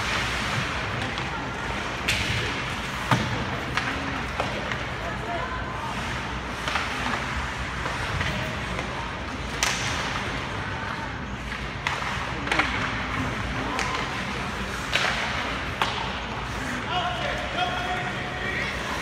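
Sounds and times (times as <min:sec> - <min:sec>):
hockey sticks striking puck: 0:00.0 - 0:05.1, 0:06.0 - 0:19.0
rink hubbub: 0:00.0 - 0:19.0
puck hitting the boards: 0:02.0 - 0:04.9, 0:14.8 - 0:16.4.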